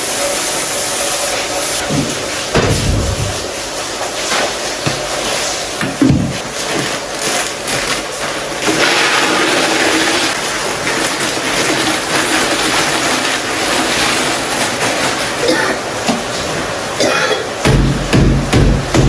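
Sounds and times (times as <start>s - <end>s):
dry food pouring into container: 7.0s - 15.2s.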